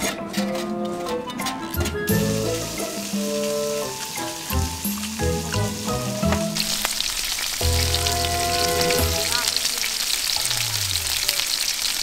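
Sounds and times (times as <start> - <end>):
background music with held notes: 0.0 - 6.7, 7.6 - 9.7
meat sizzling on a griddle: 2.1 - 12.0.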